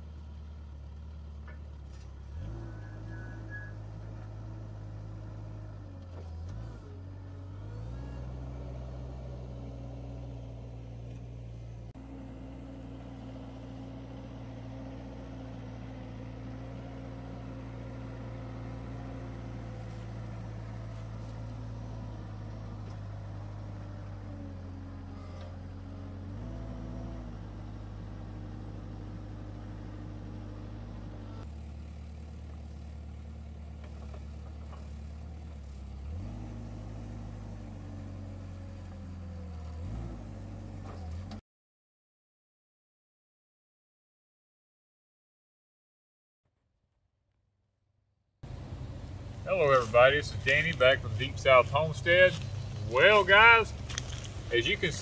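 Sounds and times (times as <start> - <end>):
forklift engine running: 0.0 - 41.4, 48.4 - 55.0.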